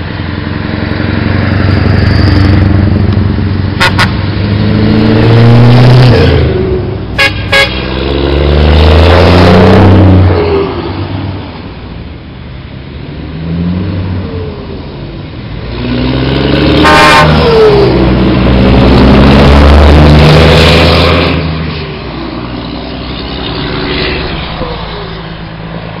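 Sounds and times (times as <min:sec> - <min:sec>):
diesel truck engine passing: 0:00.0 - 0:26.0
truck horn blast: 0:03.8 - 0:04.2, 0:07.1 - 0:07.9, 0:16.8 - 0:17.8.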